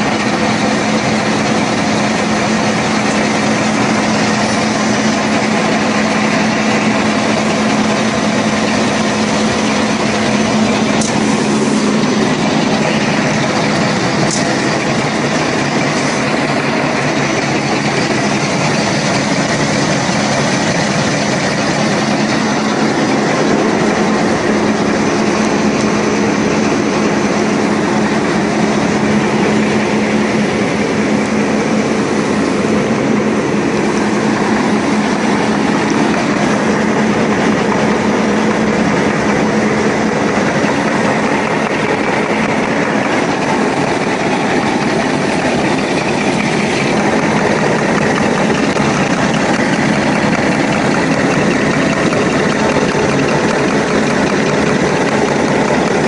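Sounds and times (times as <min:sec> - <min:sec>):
packing machine running: 0:00.0 - 0:56.0.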